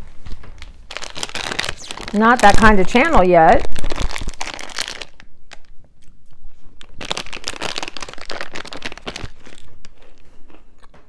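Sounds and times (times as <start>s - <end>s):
plastic snack bag crinkling: 0.2s - 6.2s, 6.8s - 10.9s
crunchy snack chewing: 6.8s - 11.0s.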